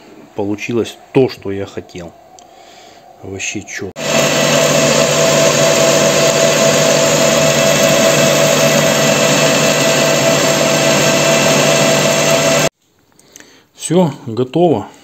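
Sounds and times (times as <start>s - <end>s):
metal lathe whining: 4.0s - 12.7s.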